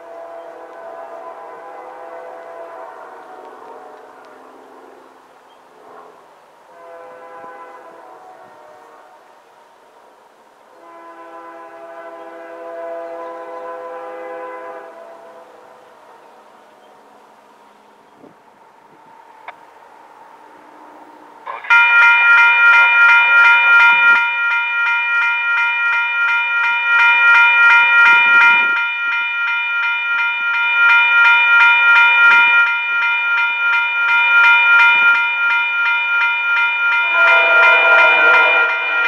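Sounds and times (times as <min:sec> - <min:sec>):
locomotive horn: 0:00.0 - 0:09.5, 0:10.7 - 0:15.9, 0:37.1 - 0:39.0
crossing bell ringing: 0:21.5 - 0:39.0.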